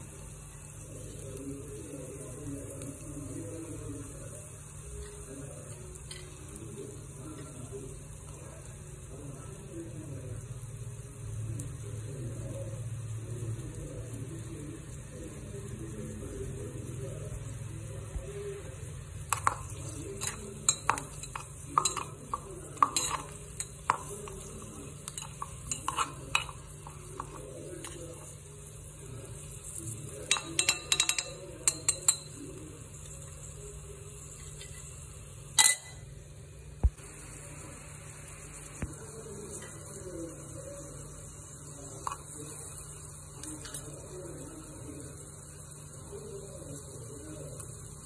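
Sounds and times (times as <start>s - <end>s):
metal spoon clinking in pot: 19.3s - 28.0s, 30.2s - 32.4s, 35.6s - 36.0s.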